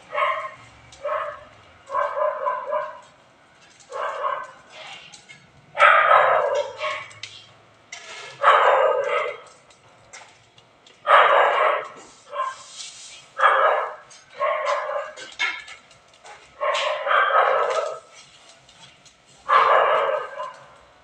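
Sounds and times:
dog barking: 0.1s - 3.1s, 3.9s - 4.7s, 5.8s - 7.2s, 8.4s - 9.5s, 11.0s - 12.6s, 13.4s - 15.3s, 16.6s - 18.1s, 19.4s - 20.7s.

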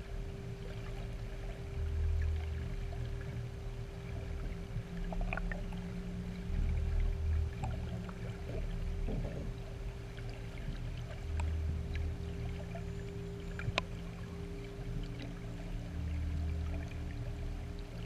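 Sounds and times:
steady hum: 0.0s - 18.0s
underwater low rumble: 0.0s - 18.0s
faint clicks: 11.3s - 12.1s.

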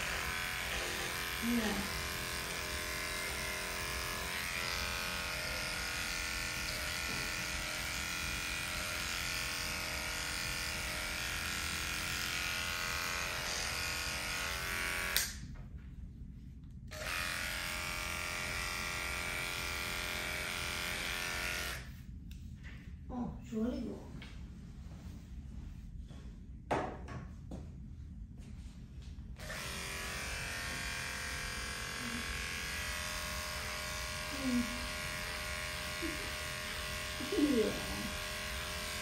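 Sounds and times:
electric clipper buzzing: 0.0s - 15.5s, 16.9s - 22.0s, 29.4s - 39.0s.

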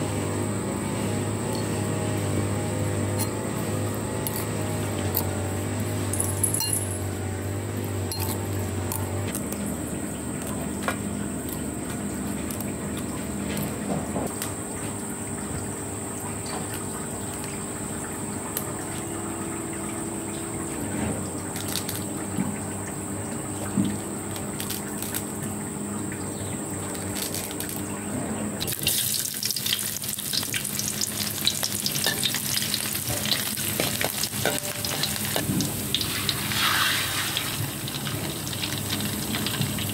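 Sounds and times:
oil sizzling in a wok: 28.6s - 39.9s.

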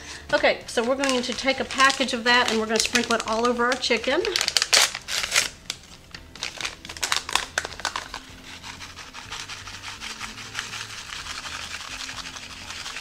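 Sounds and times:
paper packet crinkling: 0.7s - 13.0s
dry mix hissing as shaken out: 7.0s - 13.0s.

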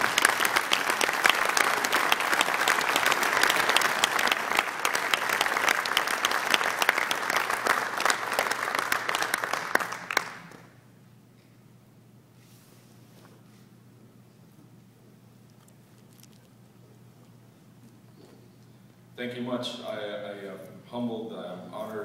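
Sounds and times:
audience applauding: 0.0s - 10.8s.

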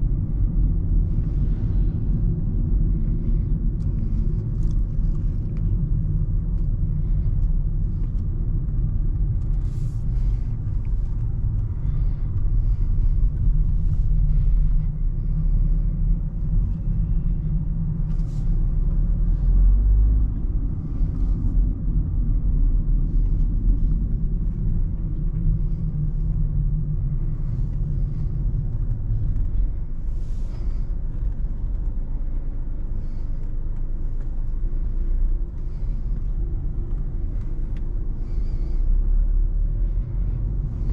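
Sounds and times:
car engine and tyres rumbling: 0.0s - 40.9s.

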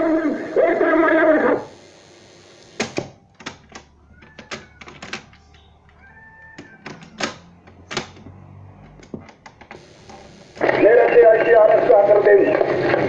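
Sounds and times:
irregular clicks and knocks: 2.8s - 10.2s.

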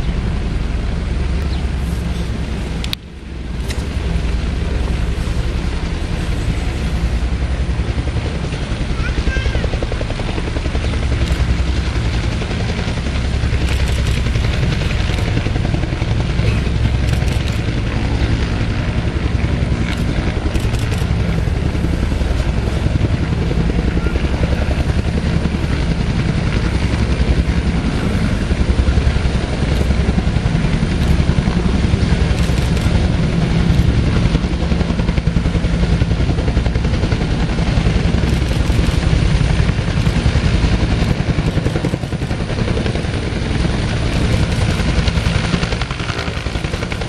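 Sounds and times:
helicopter engine noise: 0.0s - 47.0s
helicopter rotor beat: 0.0s - 47.0s.

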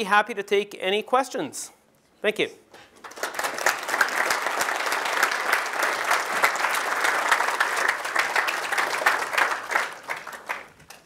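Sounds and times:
audience applauding: 2.8s - 11.0s.

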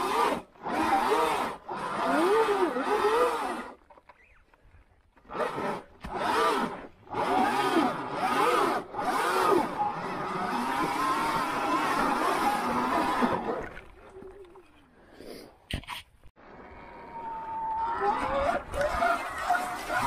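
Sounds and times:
electric motor whine: 0.0s - 3.8s, 5.3s - 13.6s.

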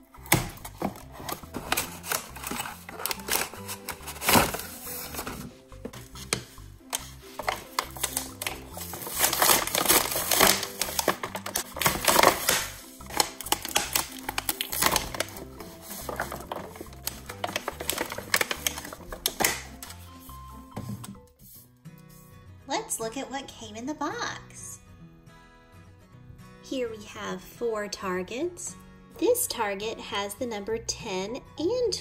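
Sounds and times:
background music: 0.0s - 32.0s
plastic packaging crinkling: 0.4s - 20.1s.

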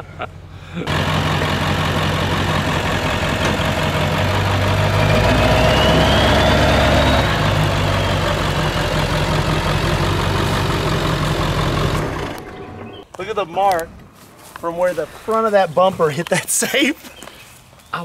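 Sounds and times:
diesel truck engine running: 0.4s - 13.0s
turbo whistle: 5.1s - 8.3s.

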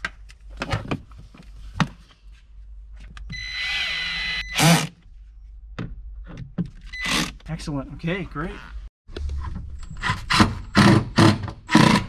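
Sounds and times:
cordless drill whine: 3.4s - 4.9s.

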